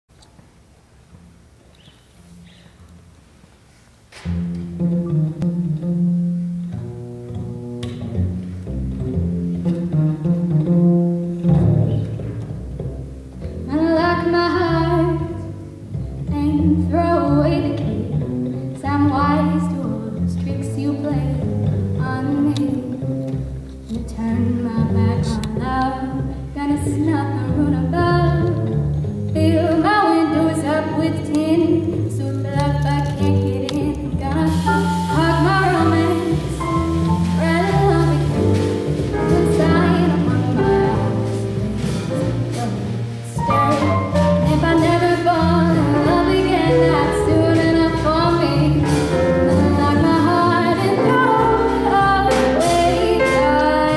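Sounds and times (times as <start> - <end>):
drums: 4.0 - 53.9
piano accompaniment: 4.2 - 53.9
plucked double bass: 4.2 - 53.9
woman singing jazz: 13.6 - 53.9.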